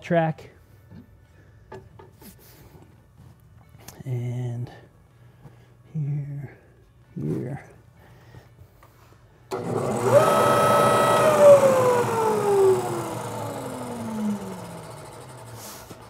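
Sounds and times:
floor sander whining: 9.5s - 16.0s.

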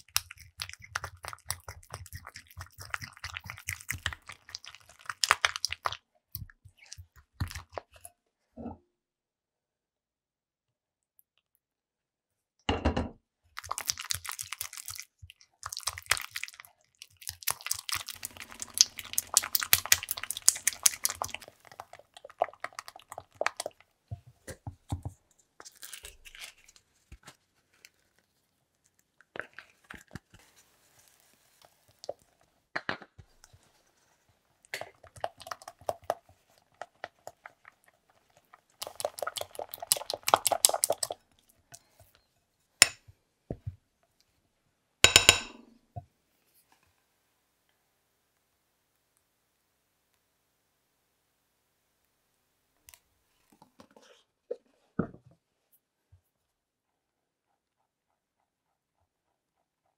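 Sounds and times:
spatula squelching cream in bowl: 0.0s - 8.1s, 13.6s - 32.5s, 33.3s - 42.2s.

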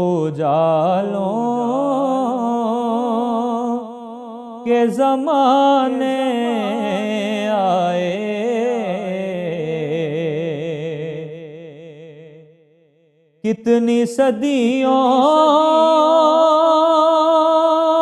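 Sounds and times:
man singing ornamented phrase: 4.6s - 11.4s.

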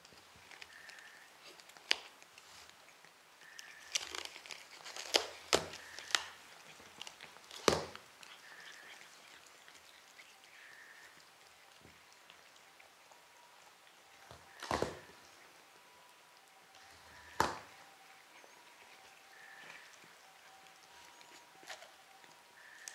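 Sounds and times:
sharp crunching snaps: 0.0s - 12.6s
cats tearing grass: 0.0s - 15.4s, 16.2s - 22.9s
cats chewing and rustling: 0.0s - 22.9s.

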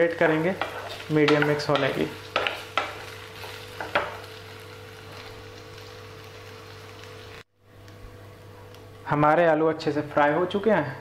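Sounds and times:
potatoes sizzling in oil: 0.0s - 7.5s.

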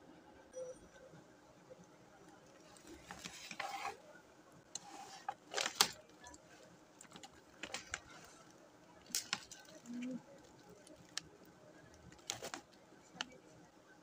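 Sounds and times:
plastic bag crinkling: 9.0s - 12.8s.

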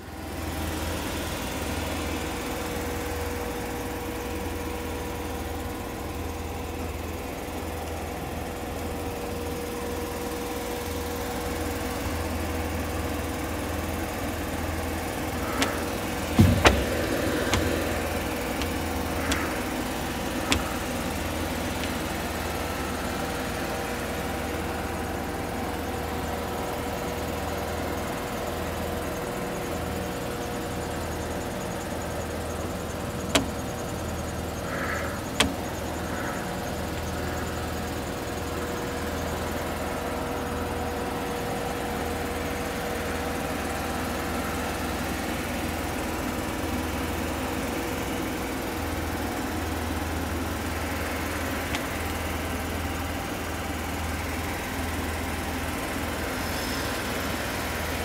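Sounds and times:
truck engine idling: 0.0s - 58.0s
short knocks and clicks: 15.4s - 22.2s, 33.3s - 33.7s, 35.3s - 35.7s.

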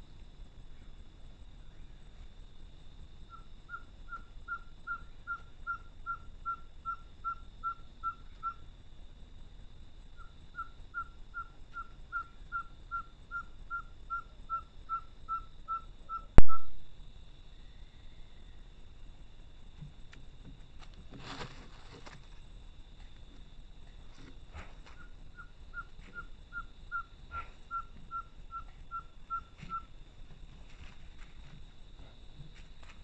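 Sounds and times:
owl calling: 3.3s - 8.7s, 10.2s - 16.7s, 24.6s - 29.9s.

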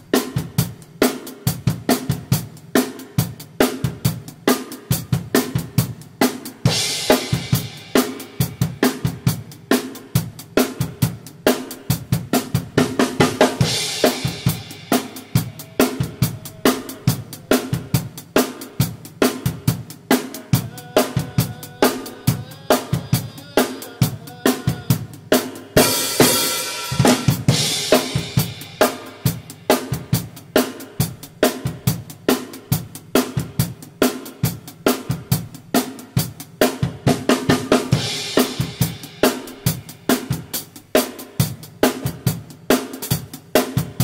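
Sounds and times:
drum kit groove: 0.0s - 44.0s.

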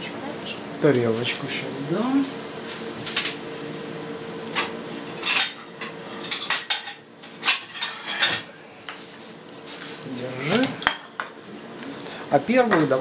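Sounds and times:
kitchenware clattering: 4.6s - 8.5s.

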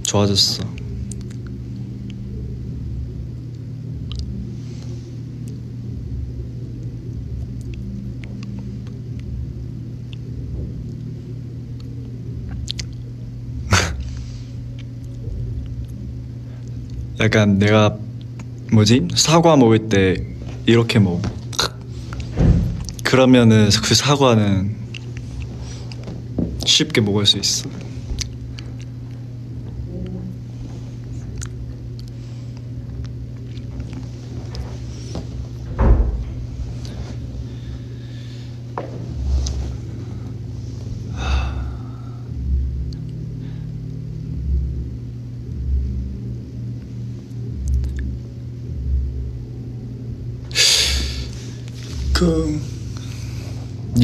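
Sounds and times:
low room hum: 0.0s - 54.0s.

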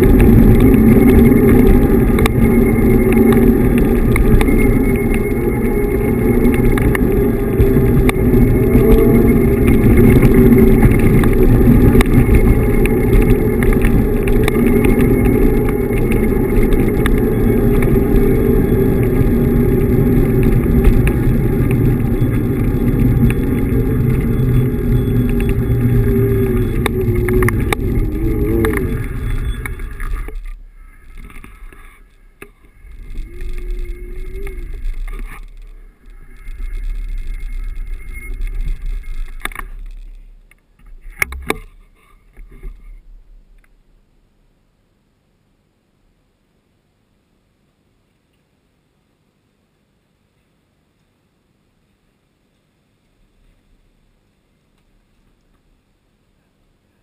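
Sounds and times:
wind buffeting microphone: 0.0s - 31.8s
electric motor whine: 0.0s - 40.3s
tyre rumble on paved road: 0.0s - 43.4s.

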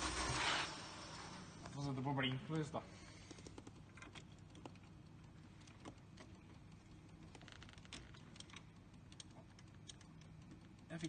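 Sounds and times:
small clicks and light rattles: 3.2s - 11.0s.

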